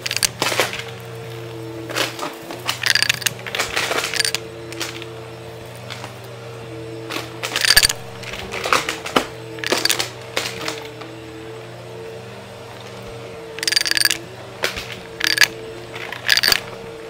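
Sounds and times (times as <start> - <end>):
coins clattering through vacuum: 0.0 - 6.2, 7.1 - 11.0, 13.5 - 17.0
vacuum cleaner humming: 0.0 - 17.0.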